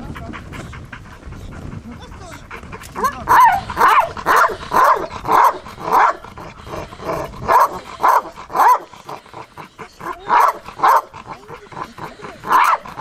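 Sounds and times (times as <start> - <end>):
dog barking: 3.0 - 6.2, 7.4 - 8.9, 10.0 - 11.2, 12.4 - 13.0.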